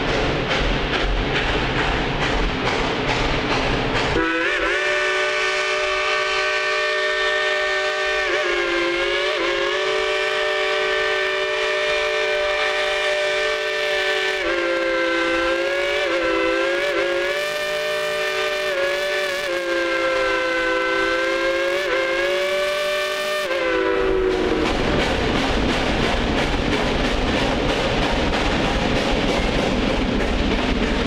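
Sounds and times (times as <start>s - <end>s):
locomotive steam whistle: 4.1s - 25.0s.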